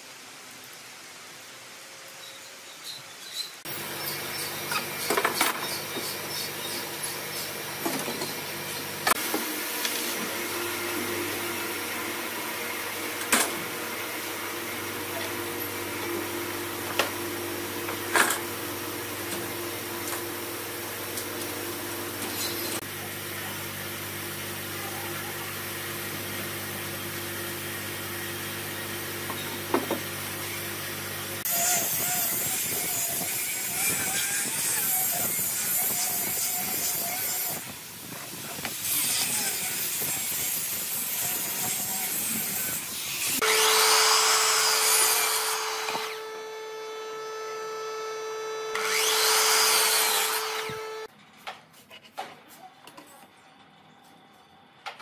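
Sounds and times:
power tool running on wood: 39.3 - 51.1.

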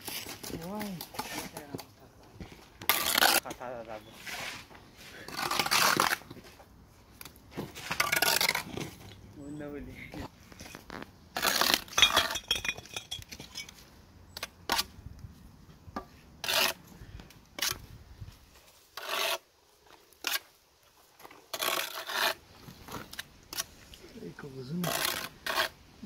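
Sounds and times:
trowel scraping and clinking on brick: 10.6 - 13.8.

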